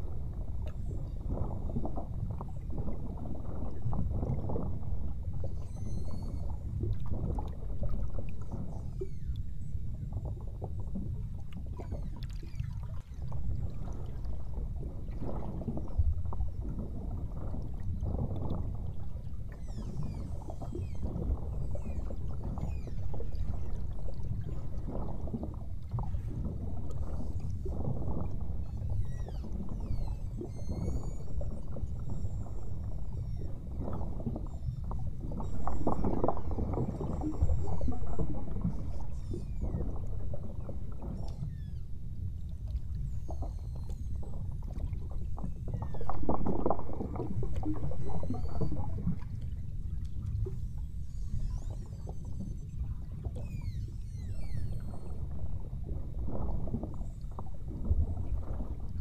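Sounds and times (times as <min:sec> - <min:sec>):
water against hull: 0:00.0 - 0:59.0
faint high whistles and chirps: 0:05.4 - 0:06.7, 0:08.5 - 0:10.2, 0:19.5 - 0:24.7, 0:28.6 - 0:46.3, 0:47.2 - 0:49.1, 0:49.9 - 0:55.7.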